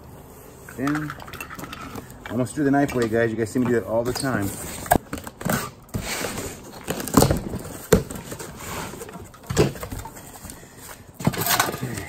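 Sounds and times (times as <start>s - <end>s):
knocks and thumps in box: 5.0s - 10.2s.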